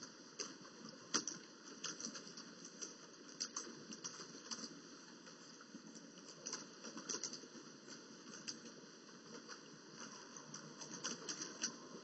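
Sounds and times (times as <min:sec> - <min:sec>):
faint steady hiss: 0:00.0 - 0:12.0
small ticks and crackles: 0:00.0 - 0:12.0.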